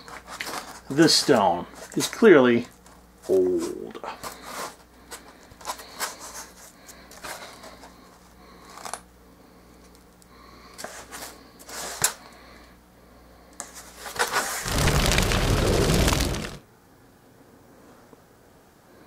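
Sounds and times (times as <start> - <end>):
foam prop rubbing and scraping: 14.2 - 16.6.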